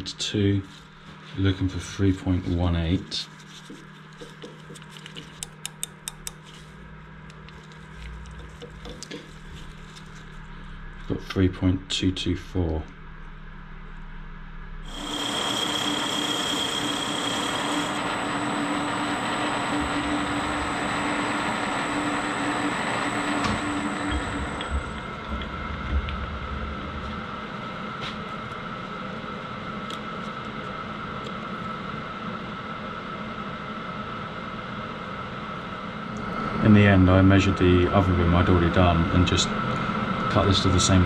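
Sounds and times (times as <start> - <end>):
metal lathe motor whine: 14.9 - 26.5.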